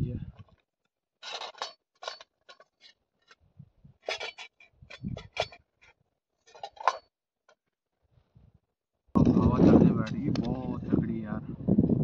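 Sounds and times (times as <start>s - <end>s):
cookware clinking and scraping: 1.2s - 3.4s, 4.0s - 5.7s.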